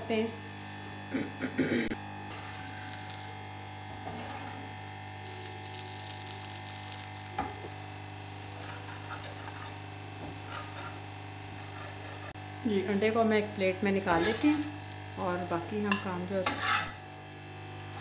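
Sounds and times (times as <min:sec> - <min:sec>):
omelette sizzling in oil: 0:02.3 - 0:18.0
metal spatula scraping a pan: 0:04.0 - 0:04.7, 0:08.4 - 0:12.4, 0:14.1 - 0:14.7, 0:15.9 - 0:17.0.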